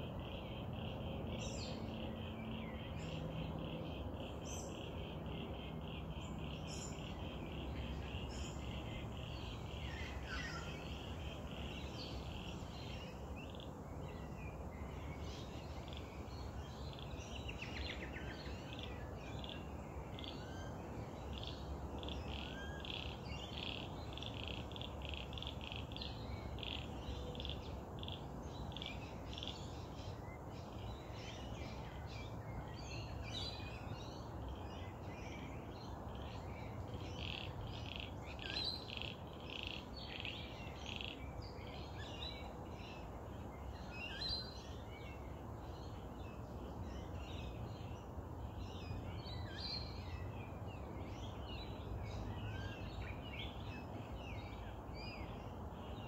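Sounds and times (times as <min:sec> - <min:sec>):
frogs calling: 0:18.6 - 0:29.6, 0:36.9 - 0:41.3.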